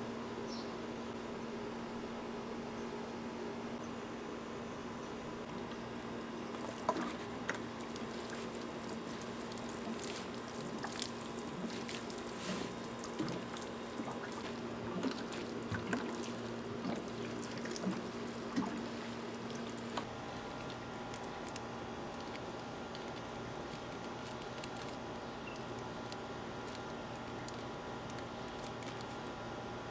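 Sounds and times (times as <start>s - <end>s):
steady low hum: 0.0s - 29.9s
water dripping: 6.4s - 21.6s.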